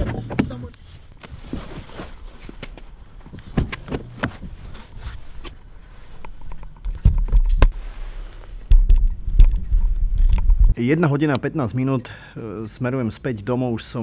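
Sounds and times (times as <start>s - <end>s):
low rumble on microphone: 7.0s - 10.8s.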